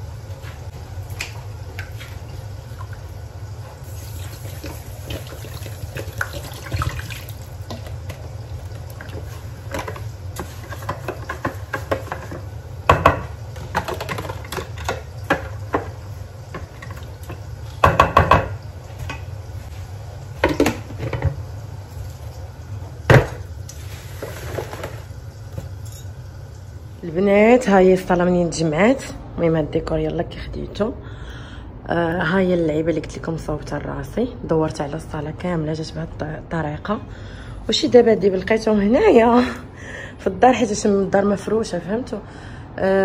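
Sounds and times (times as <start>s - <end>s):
utensils and bowls knocking: 17.8s - 18.6s.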